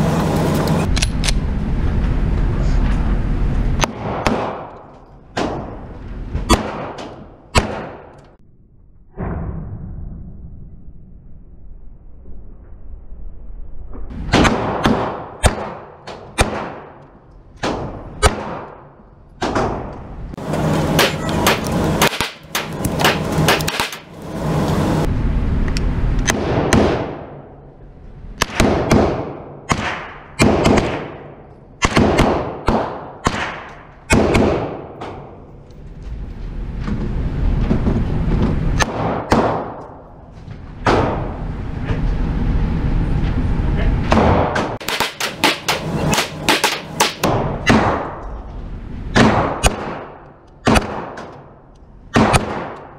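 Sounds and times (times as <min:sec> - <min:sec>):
gunshots echoing indoors: 0:03.8 - 0:05.9, 0:06.5 - 0:08.4, 0:14.2 - 0:20.0, 0:26.2 - 0:27.8, 0:28.4 - 0:35.4, 0:38.8 - 0:40.2, 0:44.1 - 0:48.2, 0:49.1 - 0:52.9.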